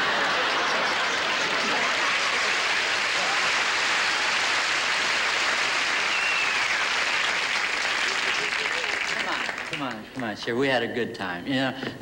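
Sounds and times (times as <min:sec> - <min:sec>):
audience laughing: 0:00.0 - 0:05.2, 0:07.9 - 0:09.8
audience clapping: 0:00.0 - 0:10.4.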